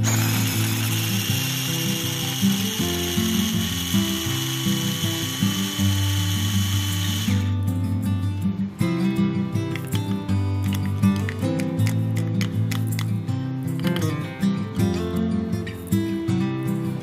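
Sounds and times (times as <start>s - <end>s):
electric mini chopper whirring: 0.0s - 7.5s
acoustic guitar background music: 0.0s - 17.0s.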